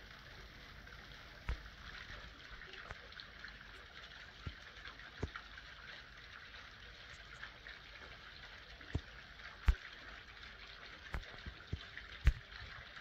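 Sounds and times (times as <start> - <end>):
faint outdoor hiss: 0.0 - 13.0.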